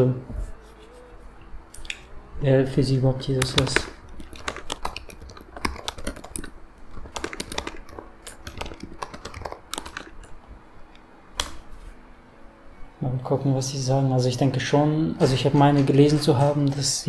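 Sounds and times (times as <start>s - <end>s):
keyboard key clicks: 3.4s - 10.3s.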